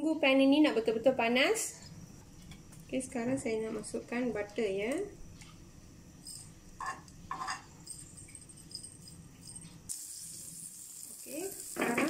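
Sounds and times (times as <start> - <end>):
butter sizzling in a frying pan: 9.9 - 12.0.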